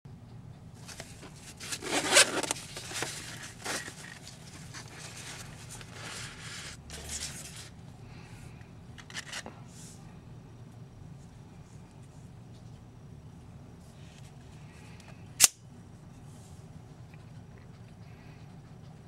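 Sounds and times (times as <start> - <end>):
fabric rustling and handling: 0.8 - 7.8
zipper rasping: 1.7 - 2.6.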